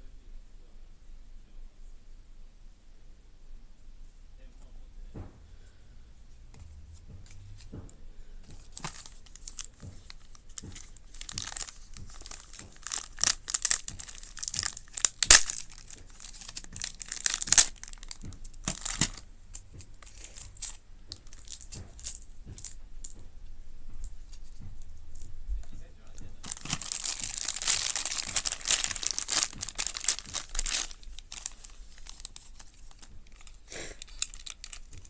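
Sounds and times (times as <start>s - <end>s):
plastic bag crinkling: 8.5s - 23.2s, 26.0s - 35.0s.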